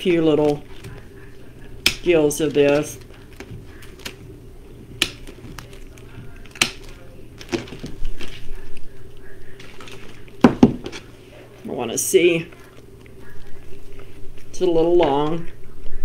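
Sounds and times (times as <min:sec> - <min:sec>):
rustling of leaves handled: 0:00.0 - 0:15.5
cutters snipping: 0:01.7 - 0:08.4.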